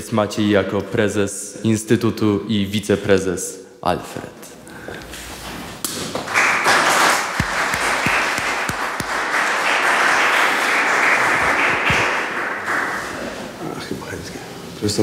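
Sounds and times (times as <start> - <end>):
audience applauding: 6.2 - 13.6.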